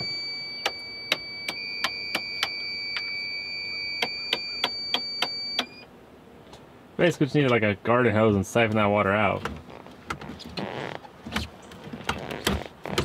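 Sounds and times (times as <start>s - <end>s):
high-pitched electronic warning tone: 0.0s - 5.8s.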